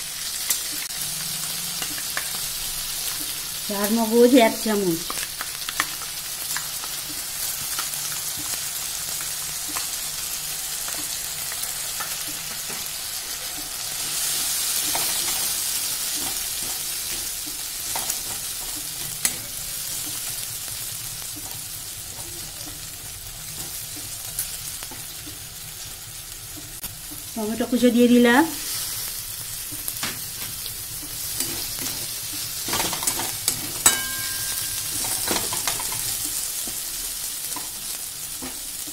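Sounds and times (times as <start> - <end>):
food sizzling in oil: 0.0 - 38.9.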